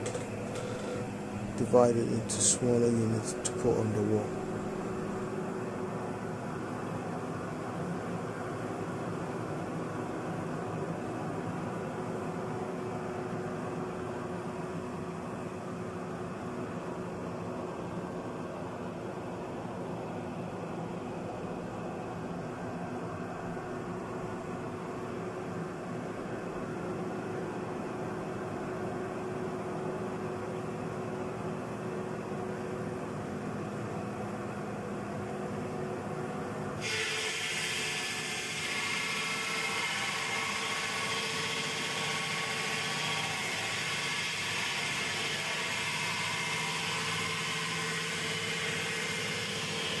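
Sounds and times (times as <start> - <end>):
circular saw cutting stone: 36.8 - 50.0.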